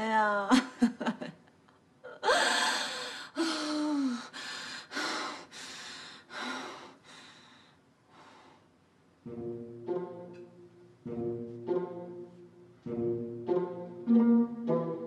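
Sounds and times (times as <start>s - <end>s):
woman sobbing: 0.2s - 1.4s, 2.0s - 5.3s.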